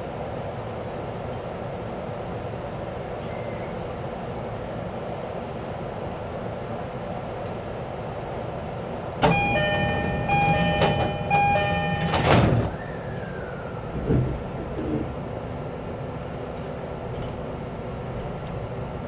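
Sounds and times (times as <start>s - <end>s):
electronic door chime tone: 9.2s - 12.4s
sliding doors shutting with thud: 9.2s - 12.8s.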